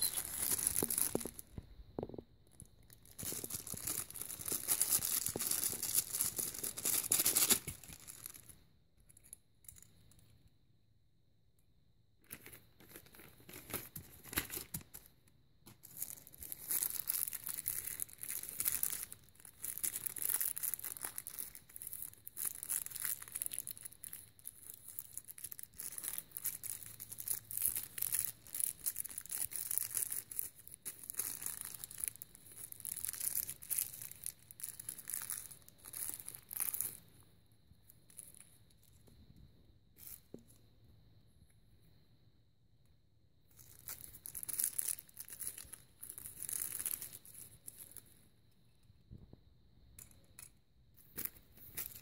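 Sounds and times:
plastic wrapping crinkling and tearing: 0.0s - 8.5s, 15.7s - 37.0s, 43.6s - 48.0s.

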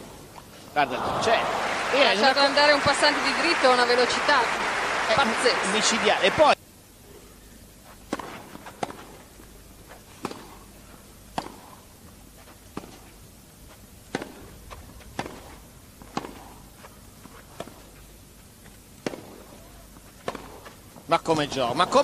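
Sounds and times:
hushed crowd: 0.7s - 6.6s
rackets striking tennis ball: 8.0s - 9.3s, 9.9s - 11.9s, 12.7s - 13.2s, 14.1s - 18.0s, 19.0s - 21.1s.

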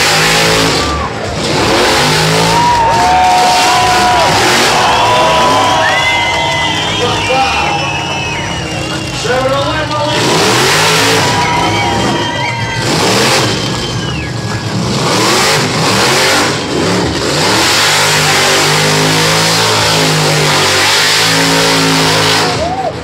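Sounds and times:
car engine revving hard: 0.0s - 22.8s
tyre squeal: 3.4s - 14.7s.

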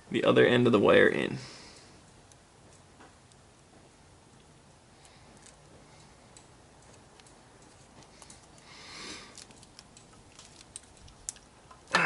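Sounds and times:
soft rustle: 5.1s - 11.5s
wire crimper clicks: 9.3s - 11.9s.

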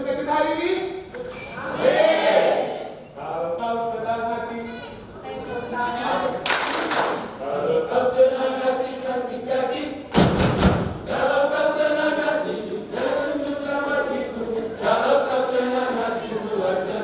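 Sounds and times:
mixed choir singing: 1.6s - 3.0s, 5.7s - 10.2s, 10.9s - 17.0s
heavy thumps: 10.1s - 11.1s.

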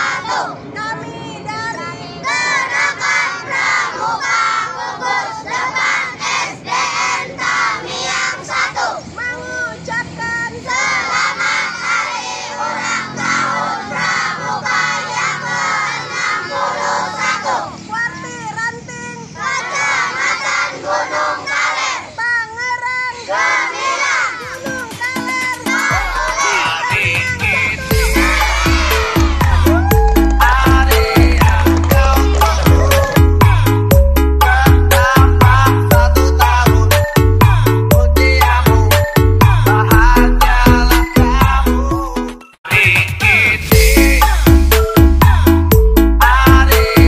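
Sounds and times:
children chanting and singing: 0.0s - 33.8s.

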